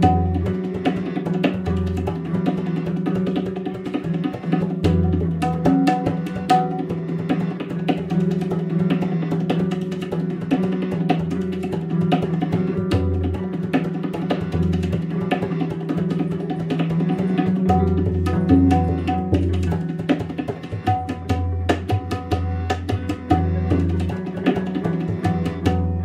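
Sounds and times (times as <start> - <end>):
percussion clicks and drum strokes: 0.0 - 26.0.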